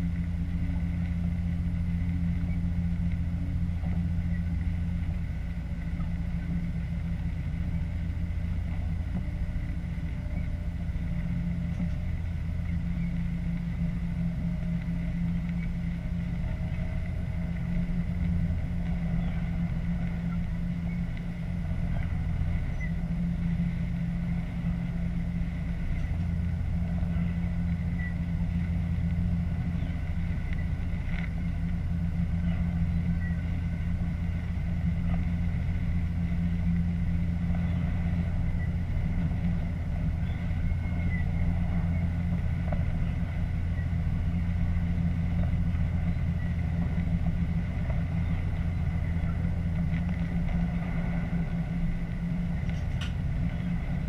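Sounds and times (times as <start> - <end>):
faint ticks: 0.0 - 7.5, 14.6 - 23.0, 25.4 - 31.8
train engine hum: 0.0 - 54.0.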